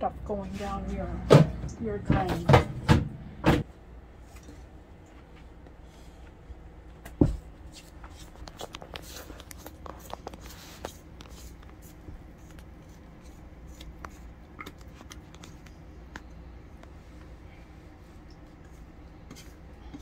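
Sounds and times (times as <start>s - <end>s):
loud thump: 1.3s - 3.6s.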